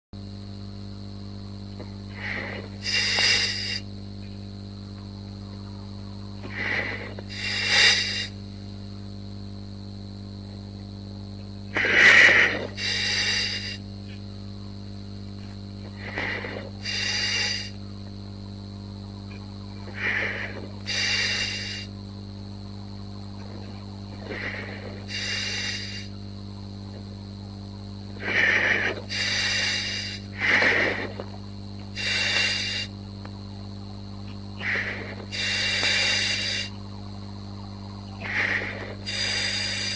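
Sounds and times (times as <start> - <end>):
steady electrical hum: 0.0 - 39.9
underwater diver breathing: 1.8 - 4.0, 6.4 - 8.5, 11.8 - 14.3, 15.8 - 17.8, 19.8 - 22.0, 23.5 - 26.2, 28.2 - 33.1, 34.6 - 36.9, 38.2 - 39.9.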